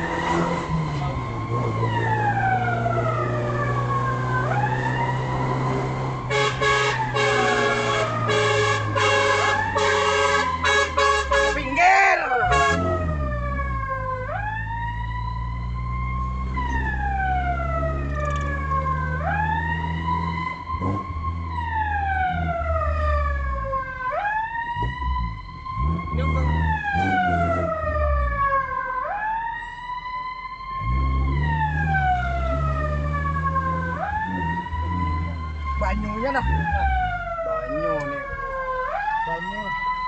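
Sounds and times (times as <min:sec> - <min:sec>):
siren wailing: 0:00.0 - 0:40.0
low engine drone: 0:12.2 - 0:39.1.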